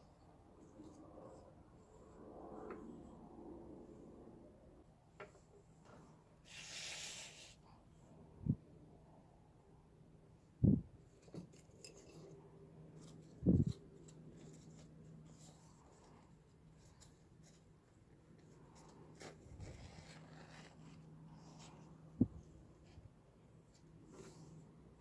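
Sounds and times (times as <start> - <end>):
faint low hum: 0.0 - 6.4
paper towel rustling: 13.0 - 21.9.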